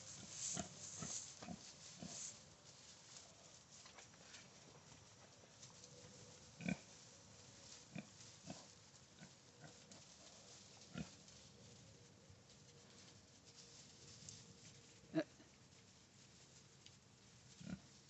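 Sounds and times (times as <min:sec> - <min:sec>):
pigs grunting softly: 0:00.0 - 0:02.3, 0:06.3 - 0:07.0, 0:07.8 - 0:11.3, 0:17.5 - 0:18.0.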